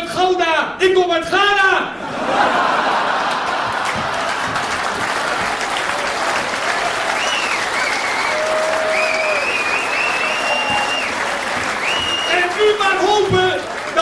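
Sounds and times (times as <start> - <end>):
audience applauding: 2.4 - 14.0
high whistling: 7.2 - 12.6.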